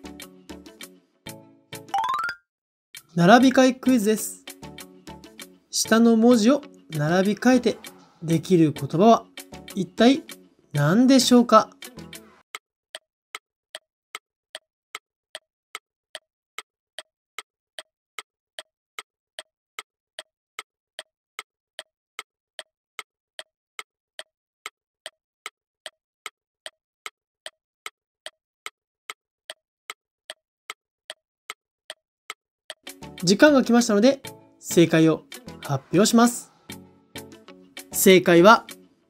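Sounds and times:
clock ticking: 12.5s - 33.5s.

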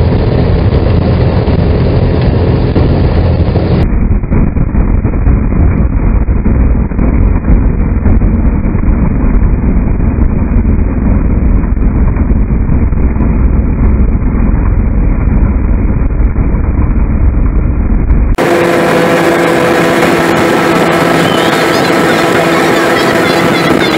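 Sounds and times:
vehicle rumble with wind noise: 0.0s - 23.9s
bright hum with pitched tones: 17.8s - 23.9s.

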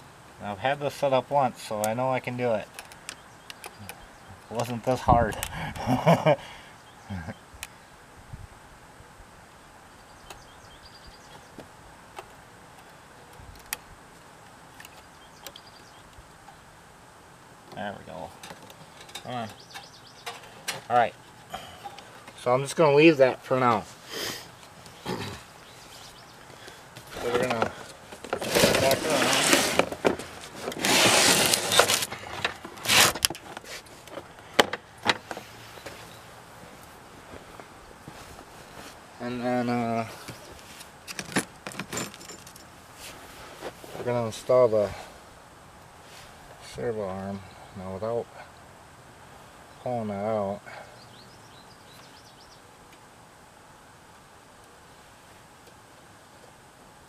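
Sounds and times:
faint bird chirps: 9.9s - 11.6s, 14.8s - 16.7s, 19.0s - 20.4s, 24.9s - 26.7s, 50.6s - 52.7s
plastic cover scraping: 27.0s - 34.3s.

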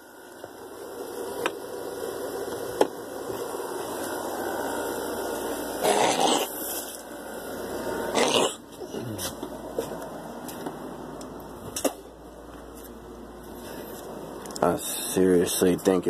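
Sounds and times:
room noise hiss and hum: 0.0s - 16.0s.

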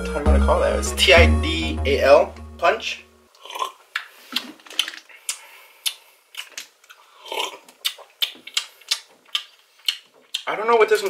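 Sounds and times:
lip smacks and tongue clicks: 3.9s - 10.5s.

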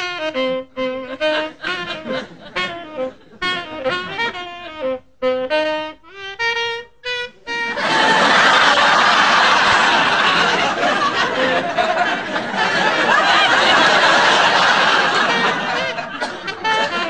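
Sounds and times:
studio audience laughing: 1.2s - 4.4s, 7.7s - 17.0s.

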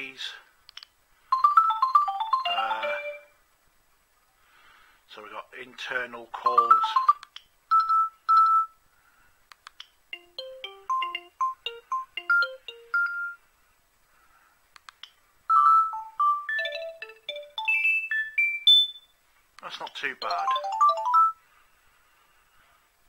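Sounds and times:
clicks: 0.6s - 1.0s, 9.5s - 10.0s, 14.7s - 15.2s
electronic ringtone tune: 1.3s - 3.4s, 6.5s - 8.8s, 10.2s - 13.4s, 15.5s - 19.1s, 20.2s - 21.4s.

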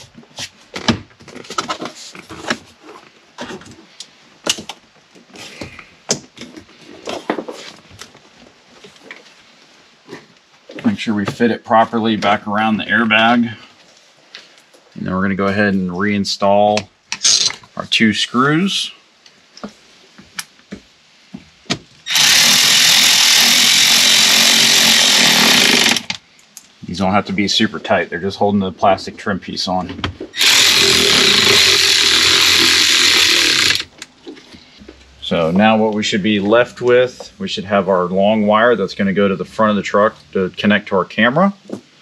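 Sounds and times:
plastic rubbing and rustling: 0.0s - 5.7s
cordless electric ratchet running: 22.1s - 26.2s, 30.4s - 33.9s.

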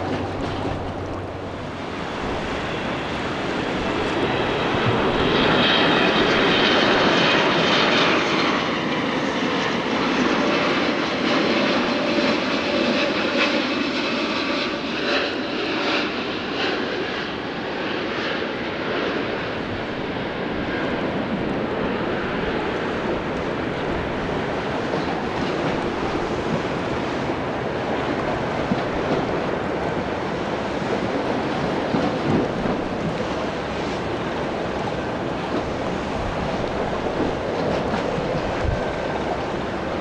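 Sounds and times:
high fan whine: 0.0s - 8.4s
jet engines rumbling: 0.0s - 40.0s.

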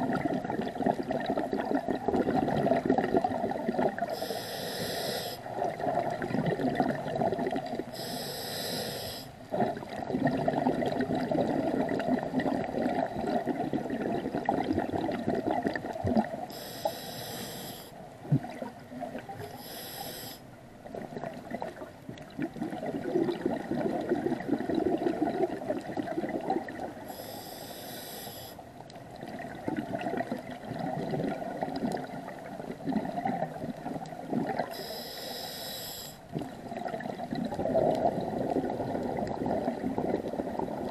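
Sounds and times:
exhaled air bubbling underwater: 0.0s - 40.9s
regulator inhale hiss: 4.1s - 5.5s, 7.9s - 9.4s, 16.5s - 18.0s, 19.4s - 20.5s, 27.1s - 28.6s, 34.7s - 36.3s.

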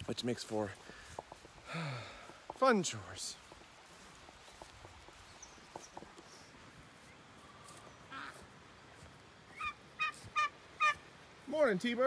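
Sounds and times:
ducks quacking: 8.1s - 8.5s, 9.5s - 11.0s.

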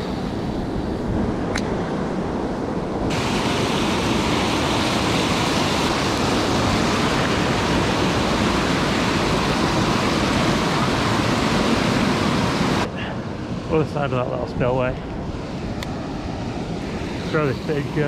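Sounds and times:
water rushing over weir: 3.0s - 14.7s
water gushing from pipe: 3.1s - 12.9s.

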